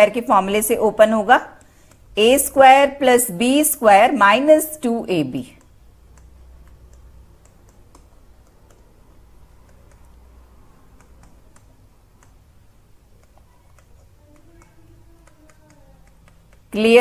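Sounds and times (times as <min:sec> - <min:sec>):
pen tapping on tablet: 0:00.5 - 0:02.5, 0:05.6 - 0:10.2, 0:10.8 - 0:12.5, 0:13.1 - 0:16.8.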